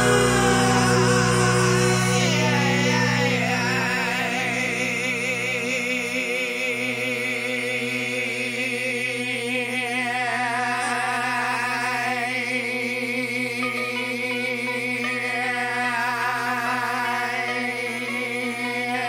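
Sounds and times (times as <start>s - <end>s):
slow rock ballad music: 0.0s - 5.9s.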